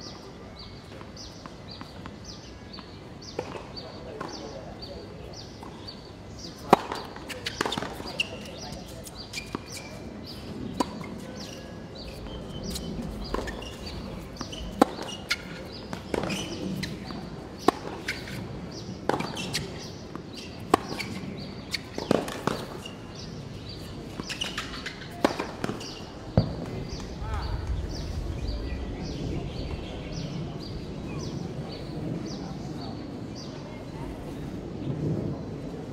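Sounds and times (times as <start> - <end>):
tennis ball bouncing on court: 6.6 - 11.5, 12.6 - 27.2.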